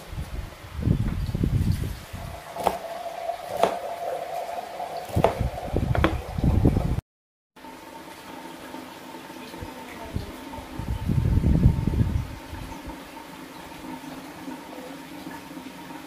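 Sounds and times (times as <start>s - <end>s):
knife chopping on wooden board: 2.6s - 2.9s, 3.5s - 3.9s, 5.0s - 6.2s.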